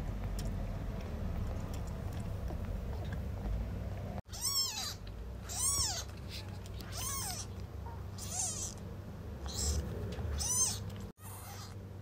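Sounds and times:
kitten mewing: 4.3 - 7.6, 8.2 - 8.8, 9.4 - 11.8.

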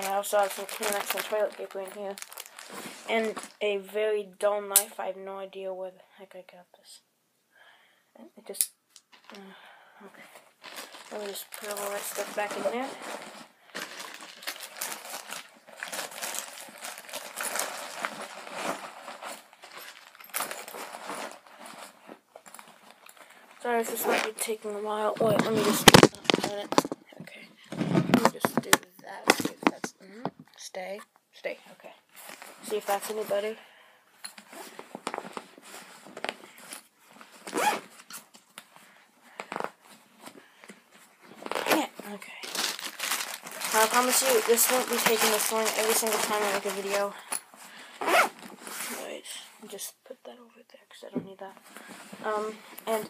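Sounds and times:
rustling of items in backpack: 0.0 - 3.6, 10.2 - 27.0, 34.4 - 49.2
zipper rasp: 12.2 - 13.6, 23.9 - 24.4, 37.4 - 38.2, 48.0 - 49.0.

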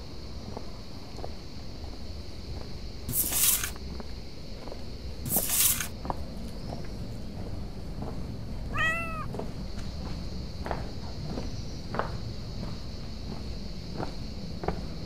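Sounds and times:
cat hissing: 3.1 - 3.8, 5.3 - 5.9, 8.7 - 9.3
cat meowing: 8.7 - 9.4.

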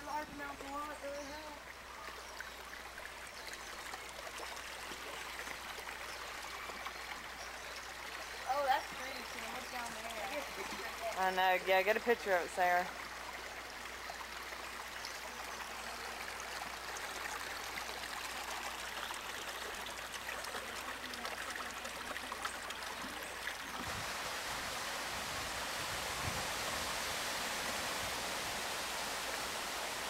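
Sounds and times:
stream rushing over stones: 0.0 - 30.0.

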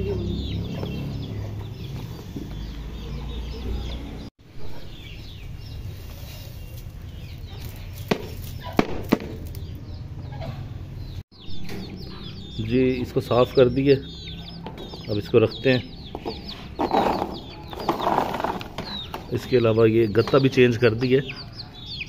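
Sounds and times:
chickens clucking: 0.0 - 9.0, 9.7 - 22.0
birds chirping: 0.0 - 22.0
plastic tray rustling: 16.8 - 19.0.

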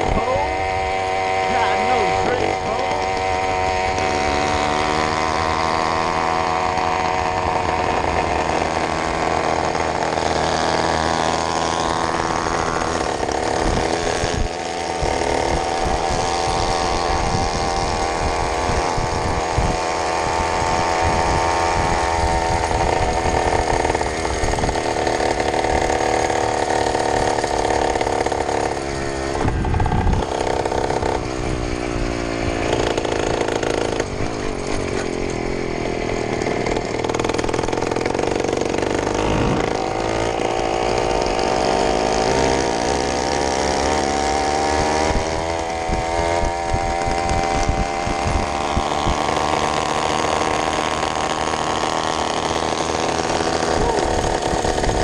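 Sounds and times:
motorized bicycle engine revving: 0.0 - 55.0
wind rushing over microphone: 11.7 - 27.4, 29.0 - 34.8, 36.7 - 41.4, 44.6 - 49.5.

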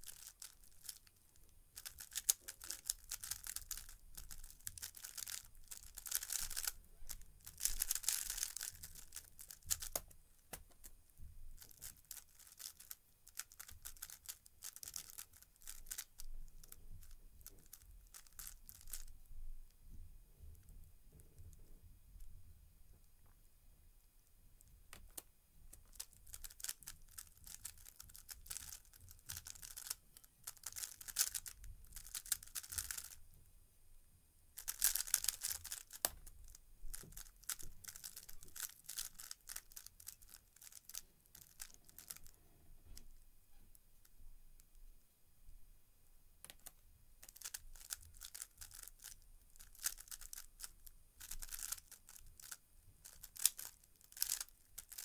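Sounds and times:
puzzle cube plastic clicking: 1.8 - 11.0, 11.6 - 19.1, 24.9 - 33.2, 34.6 - 43.1, 46.4 - 55.0.

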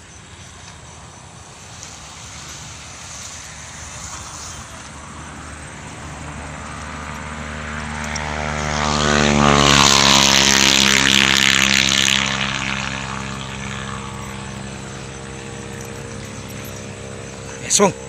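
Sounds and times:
passing engine droning: 0.0 - 18.0
hiss: 1.4 - 5.1.

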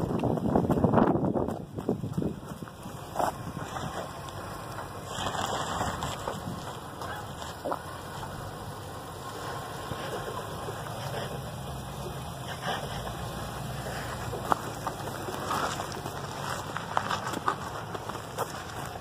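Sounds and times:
engine running low: 0.0 - 19.0.

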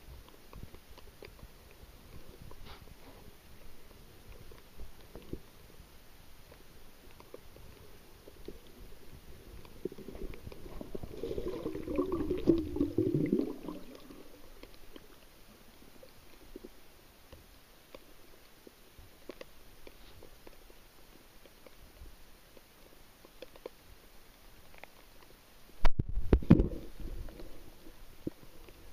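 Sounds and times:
underwater clicks and crackles: 0.0 - 28.9
low gurgling rumble: 8.1 - 15.0.

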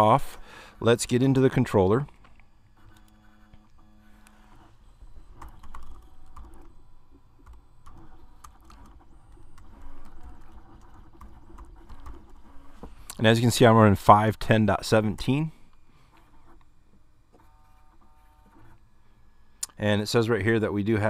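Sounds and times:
keyboard typing clicks: 5.4 - 6.7.

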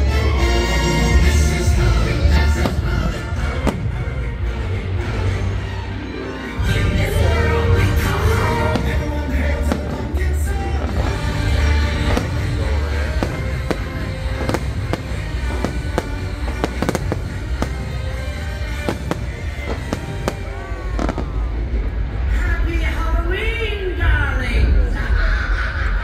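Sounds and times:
fireworks bursting: 1.6 - 5.0, 7.8 - 22.2.

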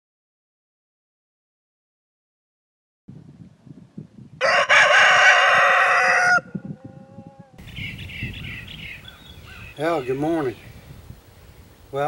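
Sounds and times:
rooster crowing: 4.4 - 7.6.

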